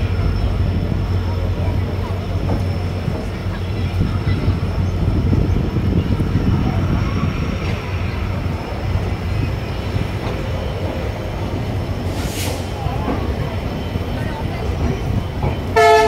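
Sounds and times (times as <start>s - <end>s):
train wheels rumbling on track: 0.0s - 16.0s
brief hiss: 12.1s - 12.7s.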